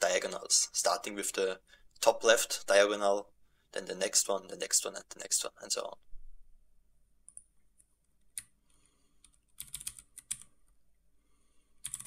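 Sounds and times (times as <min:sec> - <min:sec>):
faint keyboard typing: 0:07.2 - 0:10.8, 0:11.8 - 0:12.0.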